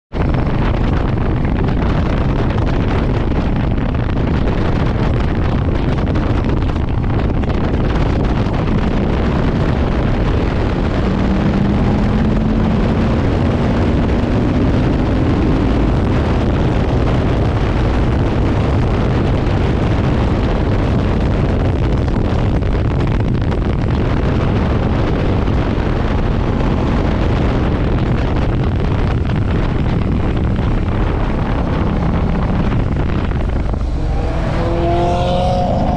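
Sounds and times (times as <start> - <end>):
wind buffeting microphone: 0.1 - 35.9
motorcycle engine revving: 7.8 - 20.6, 24.2 - 35.9.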